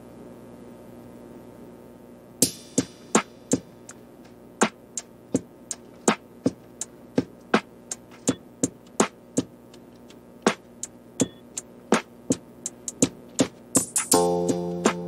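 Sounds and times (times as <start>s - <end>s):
sharp percussive beat: 2.4s - 4.0s, 4.6s - 15.0s.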